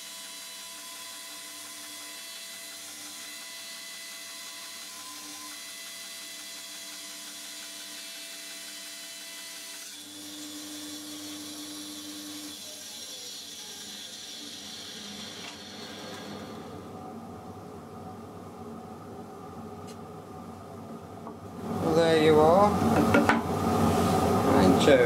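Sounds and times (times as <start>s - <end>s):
band saw cutting wood: 0.0s - 16.8s.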